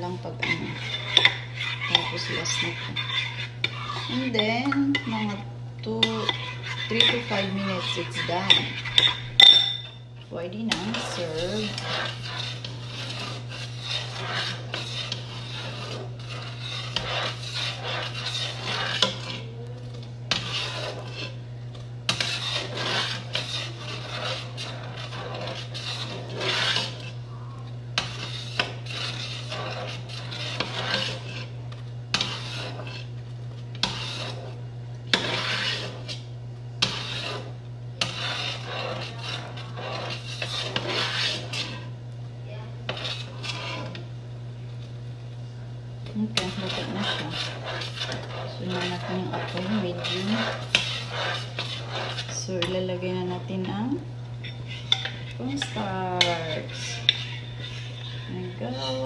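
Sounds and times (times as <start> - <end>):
spoon stirring and scraping pot: 0.0 - 59.0
spoon clinking against pot: 8.5 - 10.0.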